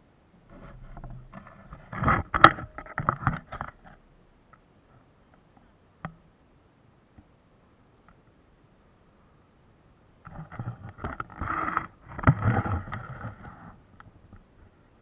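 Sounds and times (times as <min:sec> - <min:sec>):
camera handling scraping and knocking: 0:00.5 - 0:04.0.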